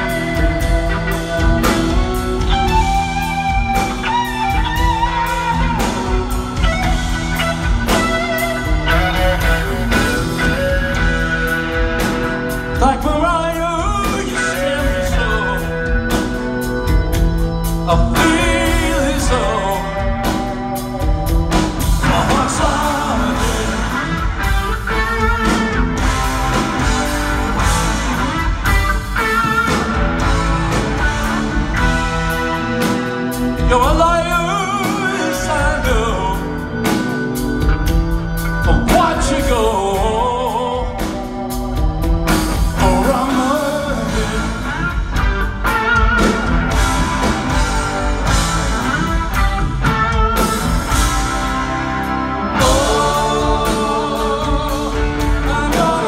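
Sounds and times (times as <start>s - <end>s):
lead vocal singing: 0.0s - 37.5s, 38.4s - 48.5s, 50.4s - 56.0s
bass guitar: 0.0s - 56.0s
drum kit: 0.0s - 56.0s
electric guitars: 0.0s - 56.0s.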